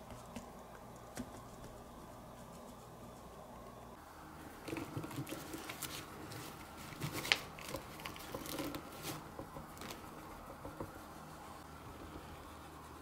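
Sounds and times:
rustling of doll clothes: 0:04.6 - 0:10.1.

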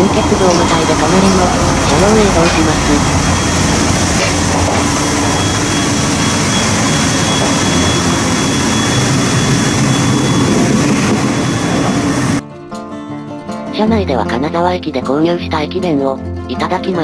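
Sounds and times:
electric train running at speed: 0:00.0 - 0:12.4
rumble and rush of wheels: 0:00.0 - 0:12.4
thin high whine: 0:00.0 - 0:12.4.

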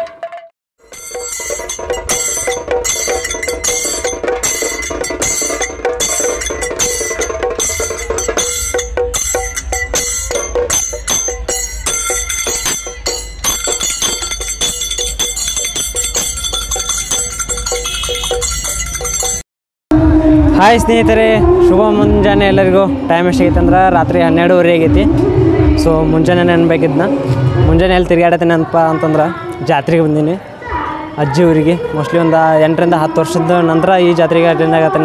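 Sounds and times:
frame drums beating: 0:00.0 - 0:19.4
metallic clashes: 0:00.3 - 0:19.4.

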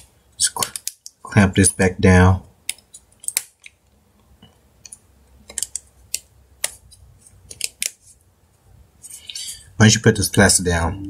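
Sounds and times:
plastic phone parts clicking: 0:04.8 - 0:06.8.

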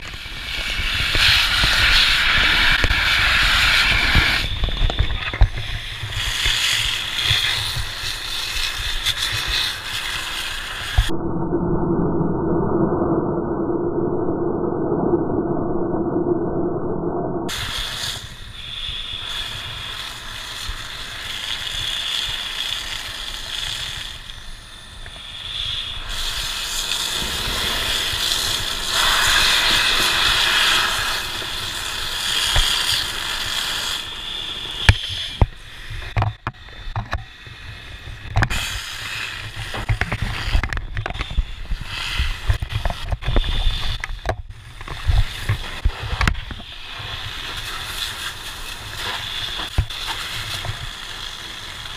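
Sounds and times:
fire hose spraying hiss: 0:00.0 - 0:11.1, 0:17.5 - 0:51.9
sharp cracks and knocks: 0:32.4 - 0:33.1, 0:39.4 - 0:41.5, 0:49.0 - 0:51.2.

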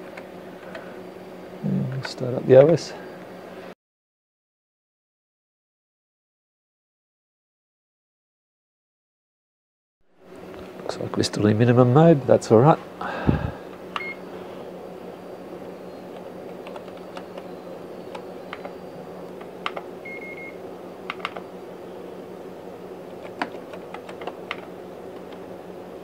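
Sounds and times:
steady low hum: 0:00.0 - 0:03.8, 0:10.1 - 0:26.0
keyboard keys clicking: 0:16.1 - 0:17.5, 0:18.1 - 0:19.9, 0:21.1 - 0:21.4, 0:23.1 - 0:25.4.

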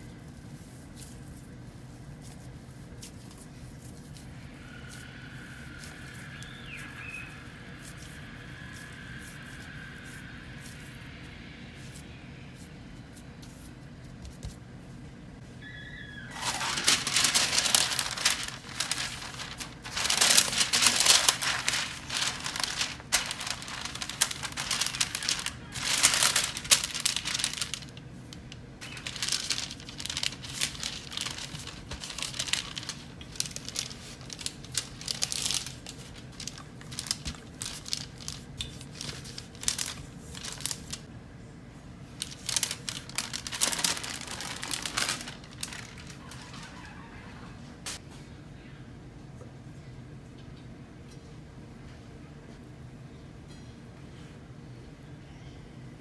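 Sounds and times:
wax paper crinkling: 0:16.3 - 0:41.1, 0:42.1 - 0:47.1.

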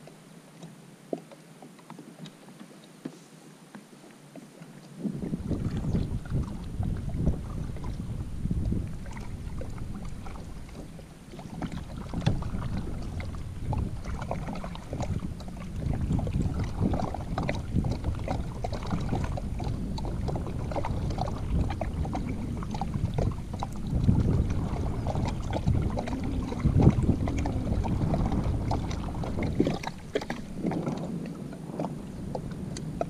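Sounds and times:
paddle splashing in water: 0:00.0 - 0:33.0
low rumble: 0:11.8 - 0:33.0.

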